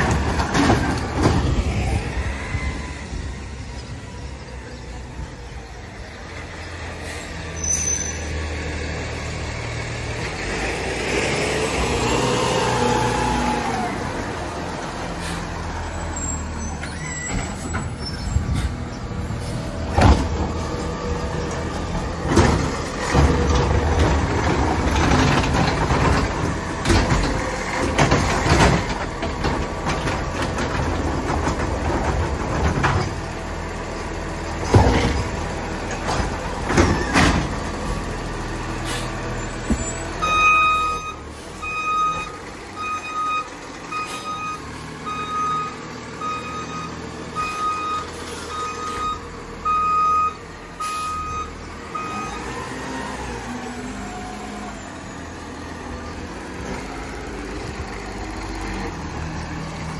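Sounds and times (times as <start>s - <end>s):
garbage truck engine rumble: 0.0s - 59.9s
sharp knocks and clatter: 21.5s - 33.3s.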